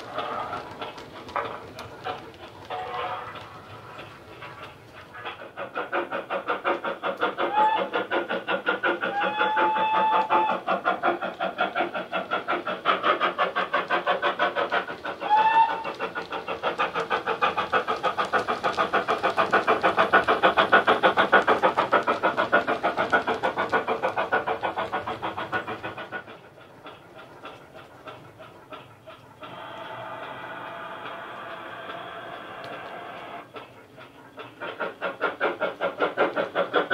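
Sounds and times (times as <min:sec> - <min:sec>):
steam locomotive chuffs: 0:00.0 - 0:36.9
train whistle: 0:07.4 - 0:07.9, 0:09.1 - 0:10.6, 0:15.2 - 0:16.0, 0:29.5 - 0:33.4.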